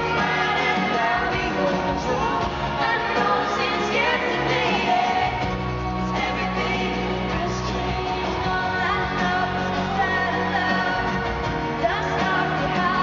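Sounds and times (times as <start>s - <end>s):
strummed acoustic guitars: 0.0s - 13.0s.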